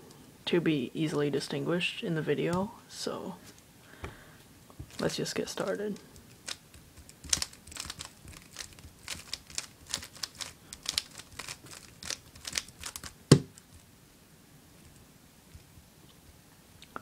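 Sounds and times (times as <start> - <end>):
plastic puzzle cube clicking: 6.2 - 13.7.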